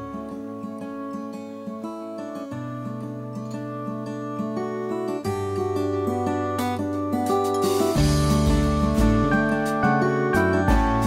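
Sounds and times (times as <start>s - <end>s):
acoustic guitar music: 0.0s - 11.0s
bass line: 8.0s - 11.0s.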